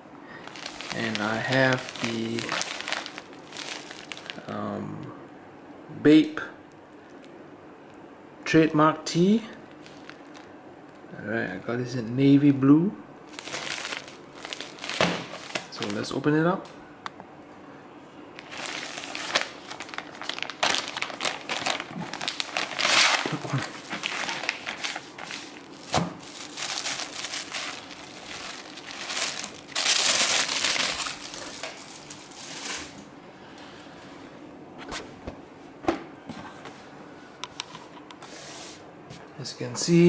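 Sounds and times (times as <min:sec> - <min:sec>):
plastic bag crinkling: 0:00.3 - 0:04.5, 0:09.6 - 0:10.5, 0:13.3 - 0:16.1, 0:18.4 - 0:33.1
t-shirt rustling: 0:00.4 - 0:04.4.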